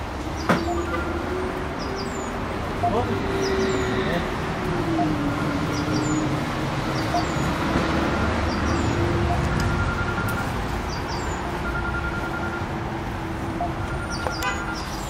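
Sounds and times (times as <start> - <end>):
traffic rumble: 0.0 - 15.0
small birds chirping: 0.2 - 7.7, 8.4 - 9.5, 10.8 - 11.6, 13.6 - 15.0.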